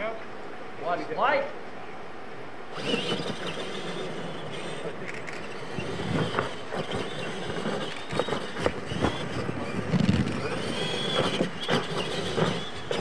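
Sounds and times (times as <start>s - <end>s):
electric toy truck motors whining: 2.7s - 13.0s.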